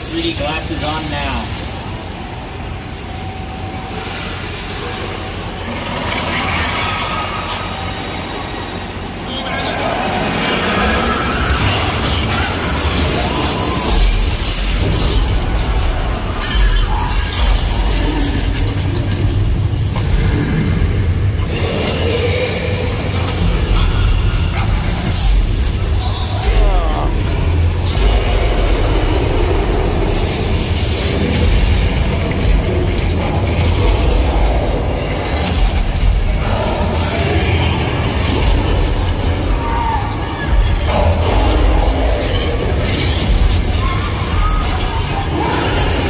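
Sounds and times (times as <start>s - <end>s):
dinosaur roaring: 9.7s - 46.0s
deep rumbling and crashing effects: 10.0s - 46.0s.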